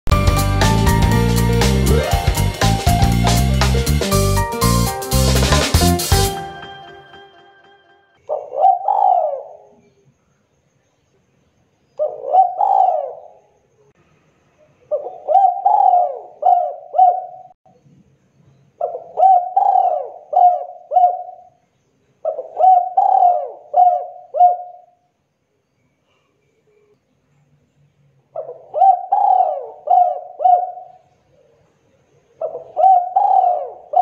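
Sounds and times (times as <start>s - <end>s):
dove cooing: 8.3s - 9.8s, 12.0s - 13.4s, 14.9s - 17.6s, 18.8s - 21.5s, 22.2s - 24.8s, 28.4s - 31.0s, 32.4s - 34.0s.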